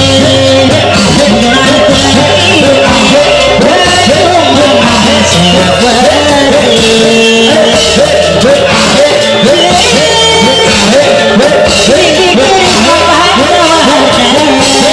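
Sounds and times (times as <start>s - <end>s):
person singing: 0.0s - 14.9s.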